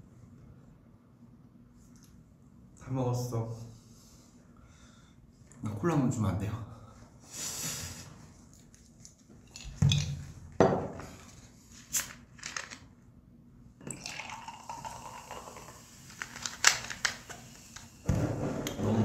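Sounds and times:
cola pouring into a mug: 0:13.8 - 0:16.6.

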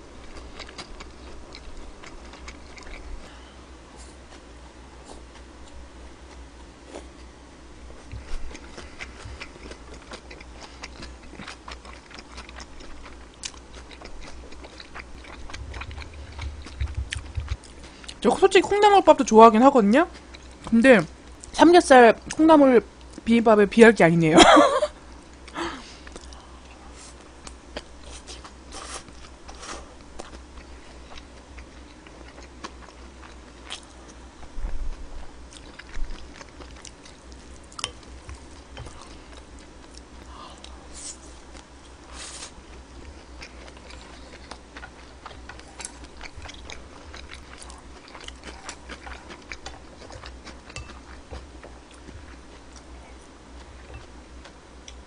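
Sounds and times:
low steady hum: 0:00.0 - 0:55.0
chewing and biting food: 0:00.2 - 0:03.4, 0:08.0 - 0:18.5, 0:27.4 - 0:34.6, 0:35.2 - 0:40.8, 0:42.6 - 0:55.0.

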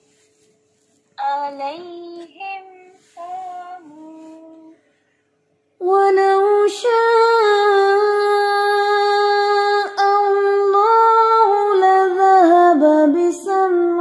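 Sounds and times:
melodic recitation chanting: 0:01.2 - 0:04.8.

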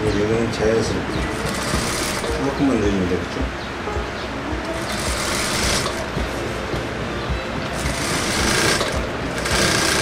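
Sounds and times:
sewing machine stitching: 0:01.4 - 0:02.4, 0:04.8 - 0:06.1, 0:07.8 - 0:10.0.

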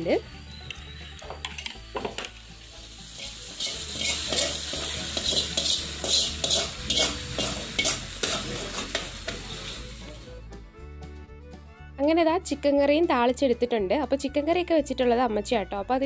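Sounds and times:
hot oil sizzling: 0:01.4 - 0:10.4
ladle scraping a pot: 0:03.2 - 0:10.0.

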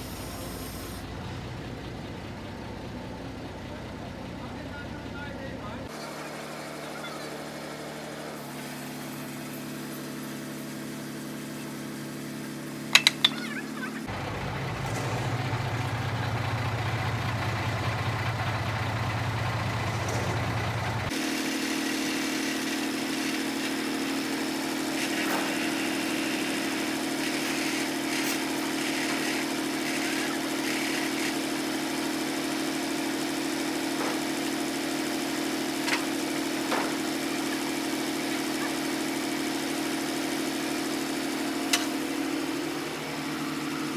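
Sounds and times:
crane truck engine idling: 0:00.0 - 0:43.9
forklift engine running: 0:00.0 - 0:43.9
sharp metal clanks: 0:12.9 - 0:13.7.

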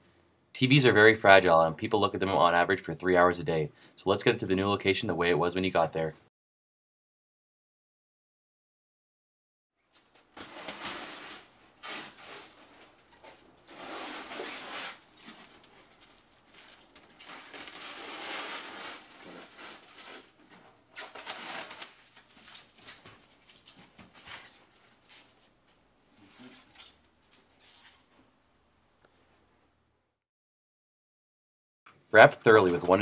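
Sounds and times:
plastic wrap rustling and crackling: 0:09.8 - 0:25.5.

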